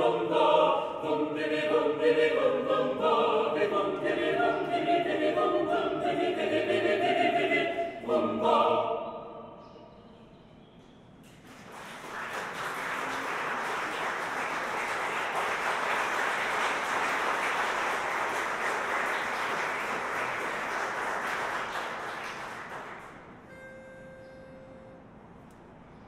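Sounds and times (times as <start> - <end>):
audience applauding: 11.3 - 23.4.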